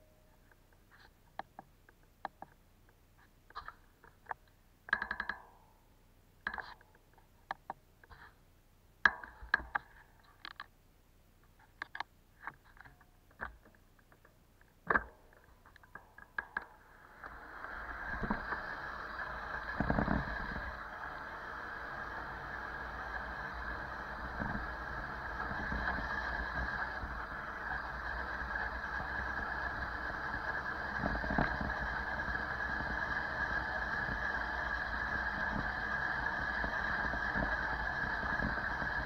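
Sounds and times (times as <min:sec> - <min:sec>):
wind and tyre noise: 0:17.0 - 0:39.0.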